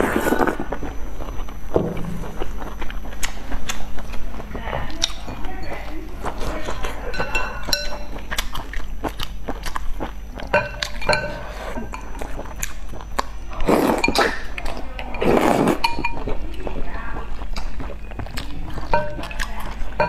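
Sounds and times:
person slurping broth: 0:00.0 - 0:00.6, 0:15.2 - 0:15.9
chopsticks clinking on glass bowl: 0:05.0 - 0:08.2, 0:10.5 - 0:12.3, 0:15.1 - 0:16.3, 0:18.8 - 0:20.0.

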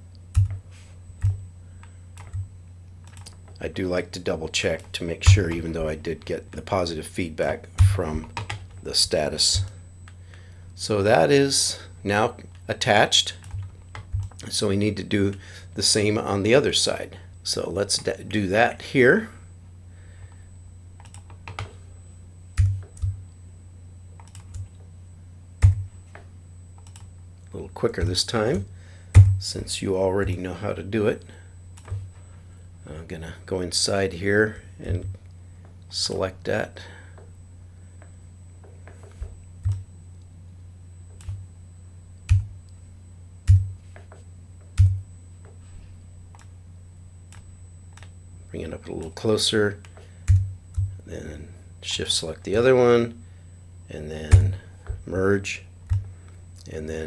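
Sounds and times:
steady low hum: 0:00.0 - 0:57.0
keyboard and mouse clicks: 0:02.2 - 0:02.4, 0:03.0 - 0:03.6, 0:24.2 - 0:24.8, 0:26.8 - 0:27.1.

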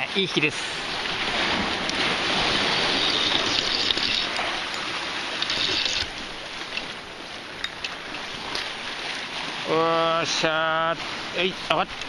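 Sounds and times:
surf splashing against rocks: 0:00.0 - 0:12.0.

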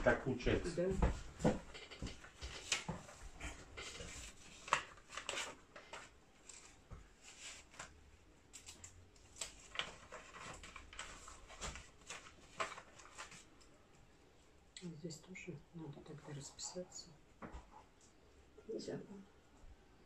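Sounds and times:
paper rustling: 0:01.0 - 0:13.8.

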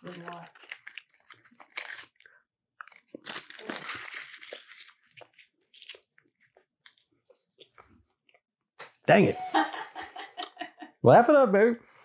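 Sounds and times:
wrapper crinkling: 0:00.0 - 0:07.1.

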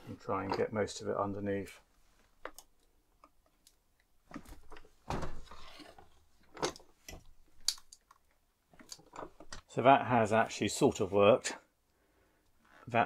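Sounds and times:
wooden knocks and clunks: 0:04.3 - 0:07.4.

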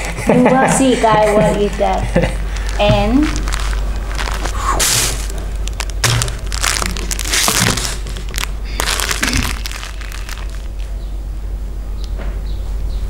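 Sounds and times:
plastic wrapper crinkling: 0:02.4 - 0:11.0.

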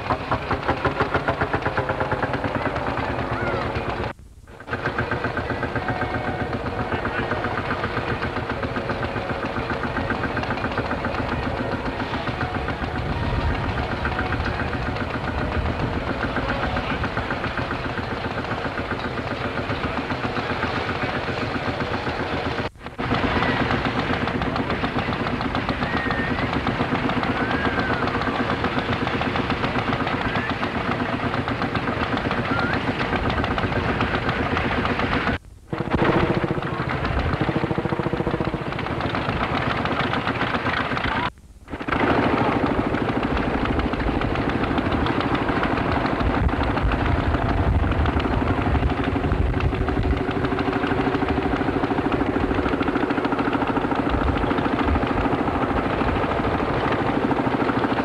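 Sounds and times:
tractor engines knocking: 0:00.0 - 0:58.0.

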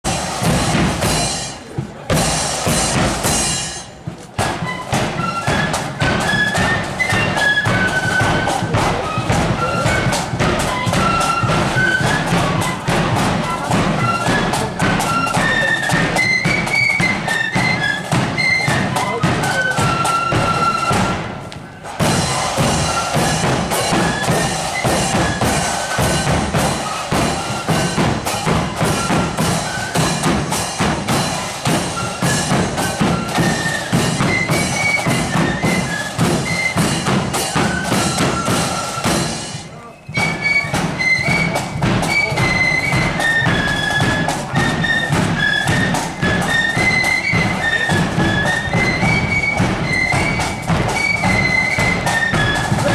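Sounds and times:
marching flute band playing: 0:00.0 - 0:52.9
snare drums beating: 0:00.0 - 0:52.9.

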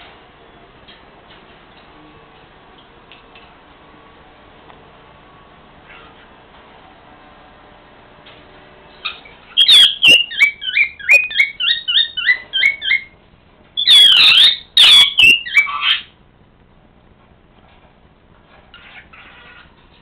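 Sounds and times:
parrot screeching: 0:05.9 - 0:06.3, 0:09.0 - 0:13.1, 0:13.8 - 0:16.1, 0:18.7 - 0:19.7
parrot chirping: 0:09.0 - 0:13.2, 0:13.8 - 0:16.2, 0:18.7 - 0:19.8.

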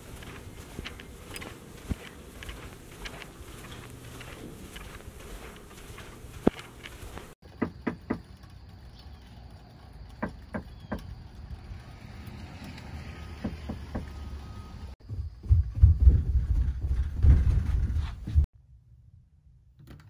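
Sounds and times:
soft footsteps on a floor: 0:00.0 - 0:07.4.

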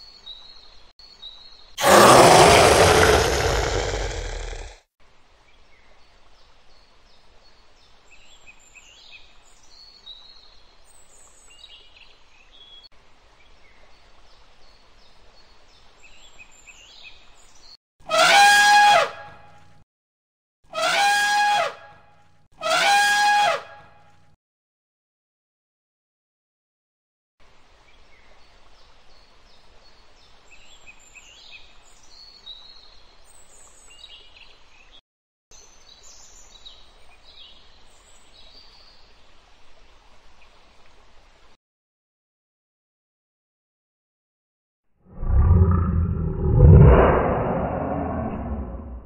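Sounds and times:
elephant trumpeting: 0:01.8 - 0:04.8.

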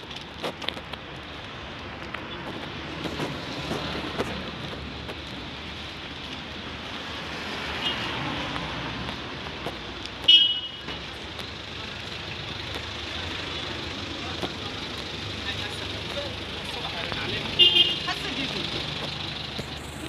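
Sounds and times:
street traffic: 0:00.0 - 0:20.0
car horn toot: 0:10.3 - 0:10.9, 0:17.5 - 0:18.3.

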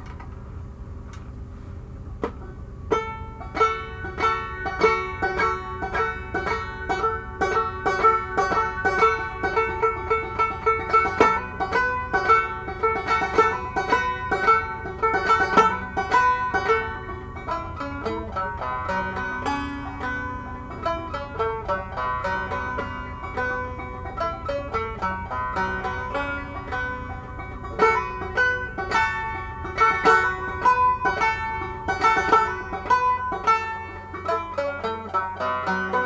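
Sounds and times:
banjo playing blues: 0:02.2 - 0:36.0.

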